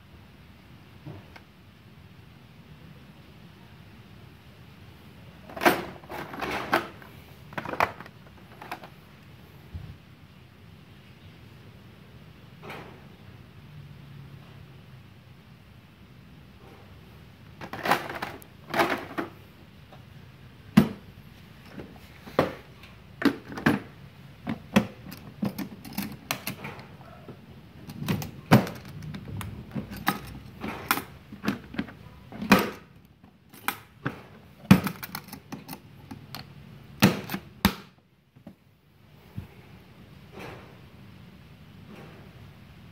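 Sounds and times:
toolbox closing: 0:05.4 - 0:08.9, 0:17.6 - 0:19.4, 0:21.7 - 0:27.0, 0:27.8 - 0:36.4, 0:37.0 - 0:37.9
metal latches snapping shut: 0:24.5 - 0:27.0, 0:27.8 - 0:32.9, 0:37.0 - 0:37.9.

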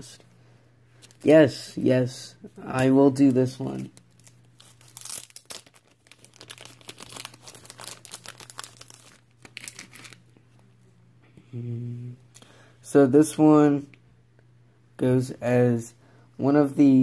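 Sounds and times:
low electrical hum: 0:00.0 - 0:17.0
plastic sleeve crinkling: 0:03.1 - 0:10.3.

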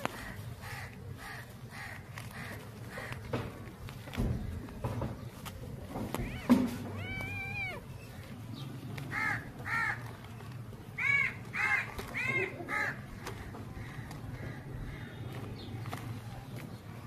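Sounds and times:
crow cawing: 0:00.0 - 0:03.3, 0:09.1 - 0:10.1, 0:11.0 - 0:15.2.

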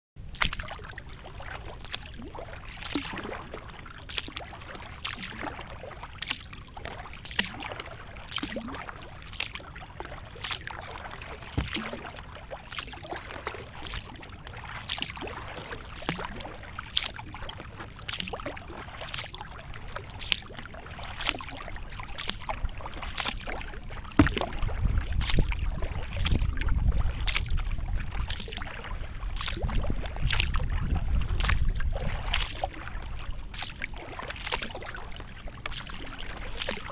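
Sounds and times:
kayak paddle splashing: 0:00.2 - 0:36.9
low rumble: 0:23.6 - 0:36.9.

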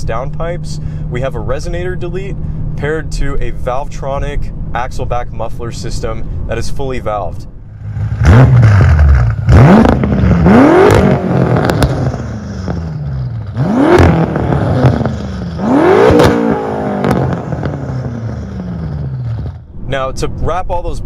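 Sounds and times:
car engine revving: 0:07.6 - 0:19.8
exhaust cracks: 0:07.8 - 0:20.3.

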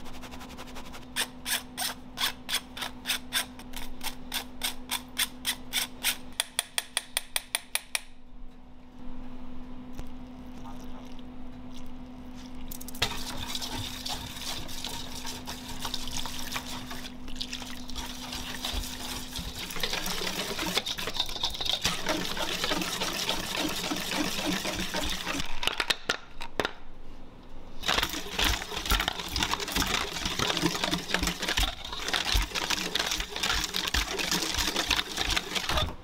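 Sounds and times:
whisk beating batter in bowl: 0:13.0 - 0:25.4, 0:27.8 - 0:35.9.

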